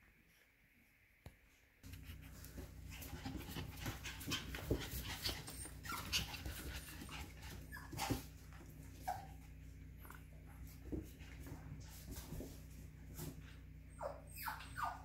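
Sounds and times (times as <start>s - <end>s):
puppies panting: 1.9s - 15.0s
puppy whimpers: 4.3s - 10.3s, 13.9s - 15.0s.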